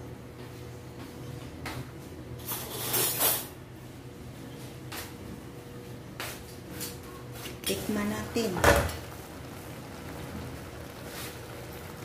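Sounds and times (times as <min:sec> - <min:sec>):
faint steady hum: 0:03.2 - 0:12.0.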